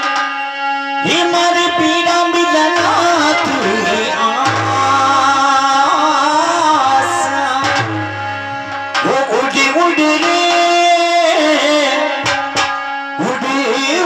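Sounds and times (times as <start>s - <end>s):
amplified harmonium: 0.0s - 14.0s
drum accompaniment: 0.0s - 14.0s
person singing into a microphone: 0.0s - 14.0s.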